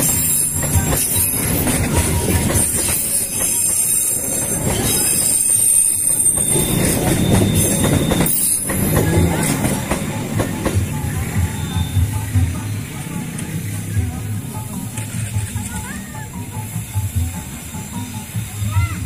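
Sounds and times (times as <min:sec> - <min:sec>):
train wheels rumbling on rails: 0:00.0 - 0:19.0
high-pitched wheel squeal: 0:02.4 - 0:09.1.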